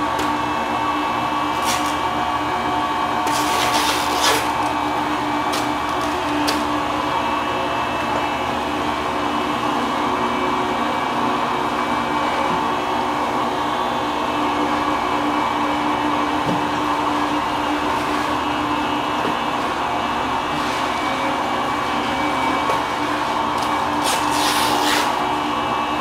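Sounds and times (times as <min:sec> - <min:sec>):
industrial machinery hum: 0:00.0 - 0:26.0.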